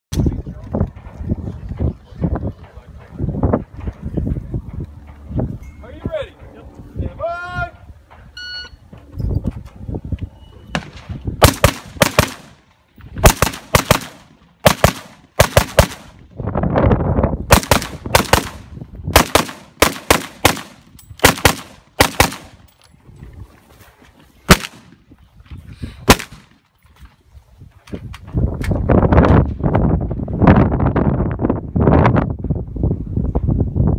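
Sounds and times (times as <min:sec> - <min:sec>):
rifle shots: 0:10.8 - 0:12.6, 0:13.2 - 0:16.2, 0:17.5 - 0:22.6, 0:24.5 - 0:25.0, 0:26.1 - 0:26.6.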